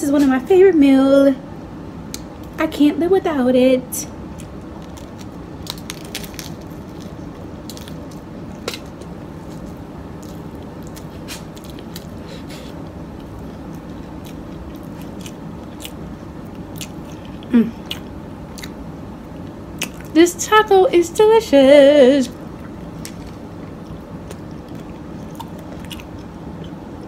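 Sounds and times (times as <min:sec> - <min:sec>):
low background hum: 0:00.0 - 0:27.0
person chewing food: 0:04.3 - 0:20.1, 0:22.3 - 0:27.0.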